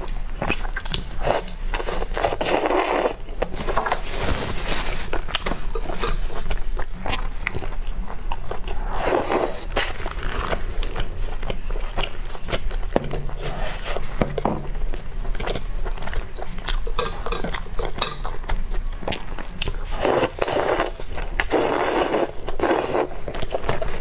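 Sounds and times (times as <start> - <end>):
close-miked chewing: 5.1 - 24.0.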